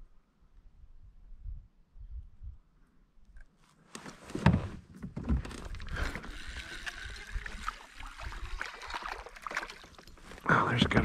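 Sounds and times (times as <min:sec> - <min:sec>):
water lapping: 0:05.7 - 0:10.6.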